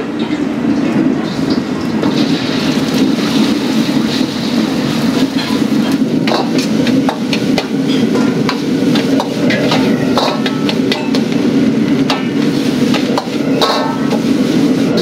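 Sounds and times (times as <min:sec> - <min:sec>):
wok burner and exhaust roar: 0:00.0 - 0:15.0
metal ladle clanking on wok: 0:05.3 - 0:11.4, 0:13.0 - 0:14.2.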